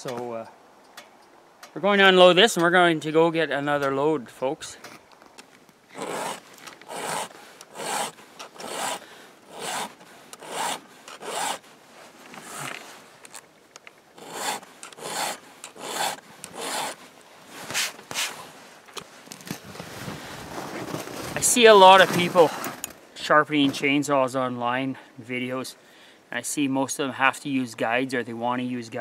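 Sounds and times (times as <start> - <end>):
file rasping on chainsaw chain: 6.0 - 11.6, 14.2 - 17.0.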